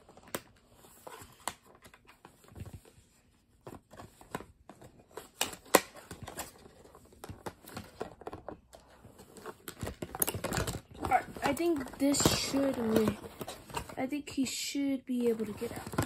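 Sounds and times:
cardboard rustling and scraping: 0.0 - 14.1, 15.1 - 16.0
cardboard snap: 5.2 - 6.5.

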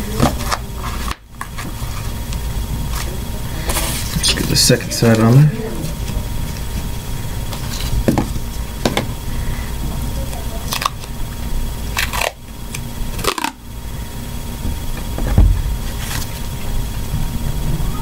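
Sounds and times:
duct tape ripping: 11.9 - 13.6.

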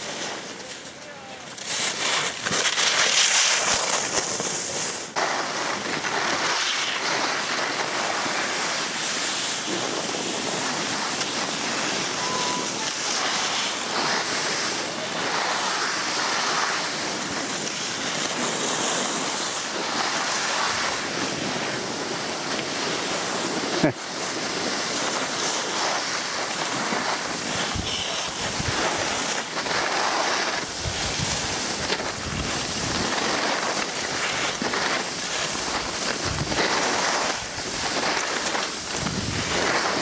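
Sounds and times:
skis scraping on snow: 0.0 - 40.0
wind on microphone: 27.4 - 29.3, 30.7 - 33.4, 35.6 - 40.0.

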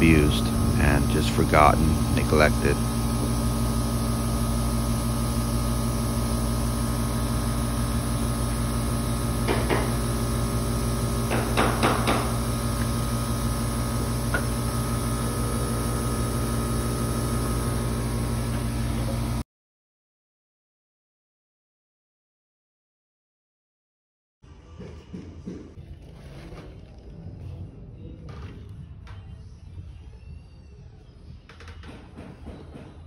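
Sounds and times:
air conditioner compressor humming: 0.0 - 19.4.

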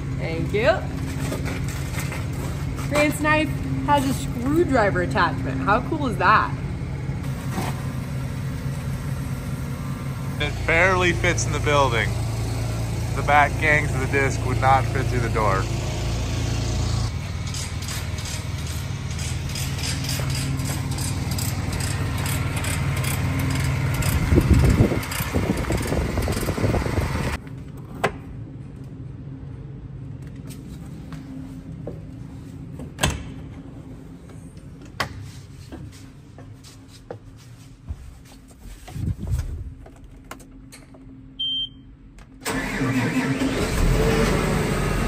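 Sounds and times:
engine idling: 6.5 - 27.4
diesel engine cranking and starting: 6.7 - 27.4, 42.4 - 45.0
footsteps: 34.2 - 40.0
short beep: 41.4 - 41.9.

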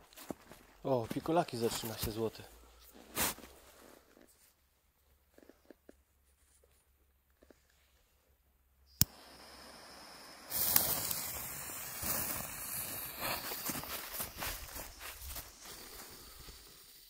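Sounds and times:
firework hissing and crackling: 9.0 - 17.0.

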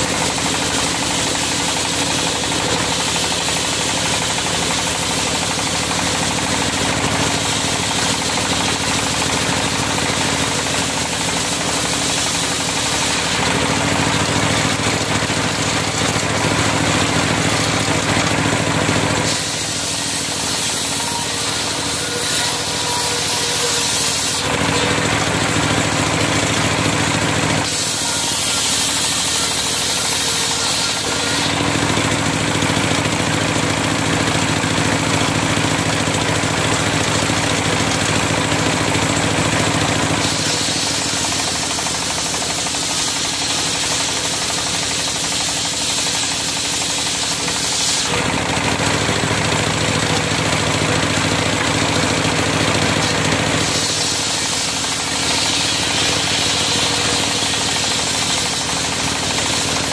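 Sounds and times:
circular saw blade ripping a log: 5.6 - 32.6, 39.6 - 48.3, 51.4 - 59.9.

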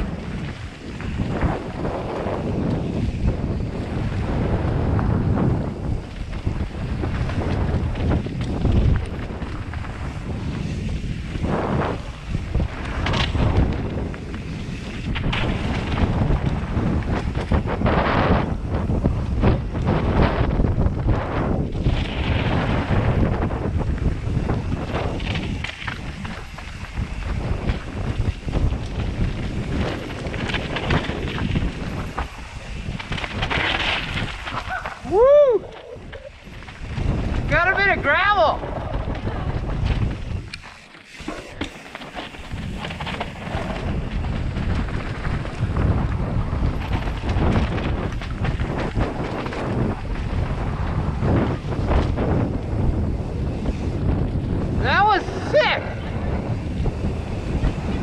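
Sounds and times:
bike rattling over rocks: 0.0 - 58.0
tyres rumbling on dirt trail: 0.0 - 58.0
wind buffeting microphone: 0.0 - 58.0
person whooping: 34.6 - 36.3.

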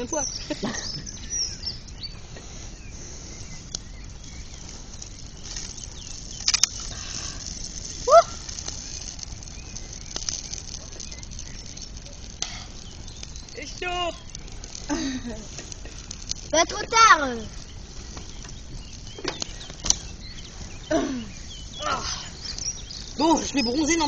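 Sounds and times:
bonfire crackling: 0.0 - 24.0.

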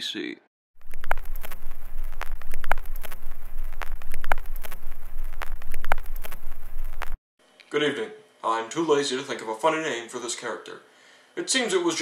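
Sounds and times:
film crackle hiss: 0.8 - 7.2
low hum: 0.8 - 7.2
pops and clicks: 0.8 - 7.2.

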